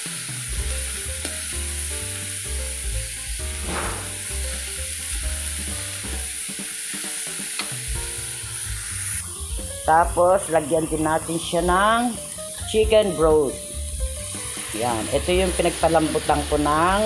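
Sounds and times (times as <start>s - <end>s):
chicken sizzling in a pan: 0.0s - 17.0s
background music: 0.6s - 6.5s, 9.2s - 17.0s.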